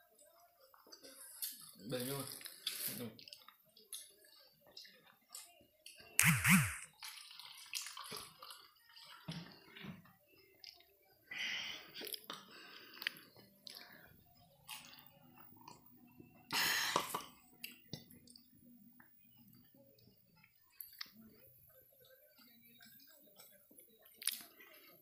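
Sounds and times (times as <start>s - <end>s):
short noisy bursts: 6.2s - 6.9s
person chewing: 22.3s - 24.9s.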